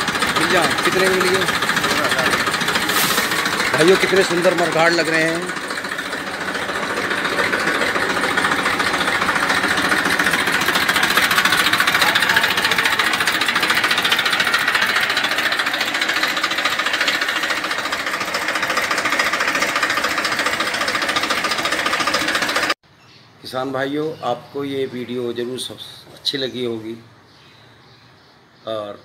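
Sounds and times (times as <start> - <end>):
tractor diesel engine running: 0.0 - 22.8.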